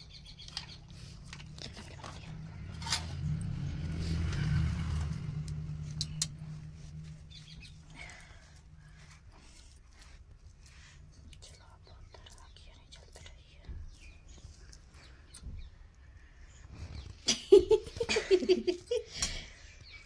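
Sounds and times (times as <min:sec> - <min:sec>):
low hum: 0:00.6 - 0:12.0.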